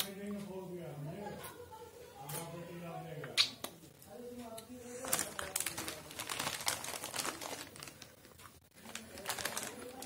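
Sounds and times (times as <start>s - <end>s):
snack packet rustling: 4.8s - 10.0s.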